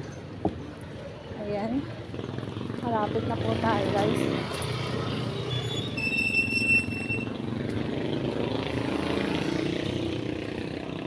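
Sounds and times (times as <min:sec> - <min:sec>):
motorcycles and vehicles passing: 0:00.0 - 0:11.0
high squeal: 0:05.3 - 0:07.3.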